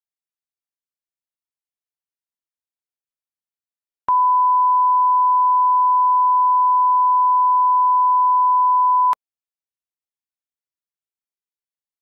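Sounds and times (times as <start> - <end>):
steady test tone beep: 4.1 - 9.2.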